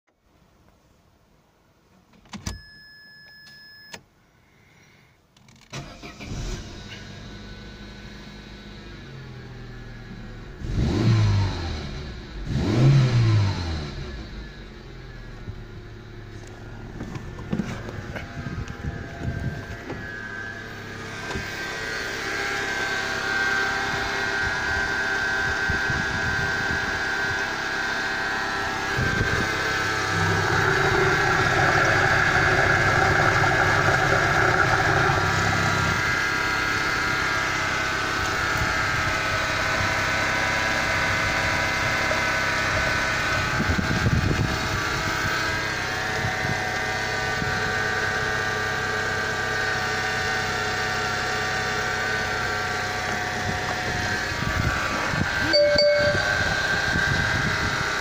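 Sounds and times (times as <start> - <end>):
car engine idling: 13.9 - 58.0.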